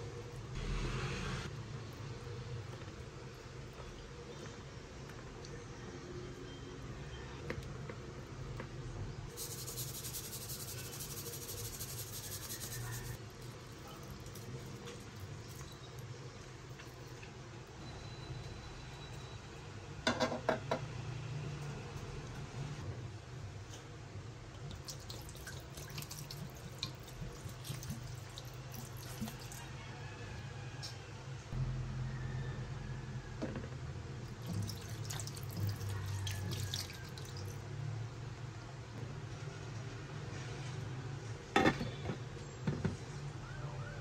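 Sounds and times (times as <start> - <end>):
salt sprinkling hiss: 9.3 - 13.2
vinegar pouring and splashing: 24.6 - 29.6, 34.3 - 37.6.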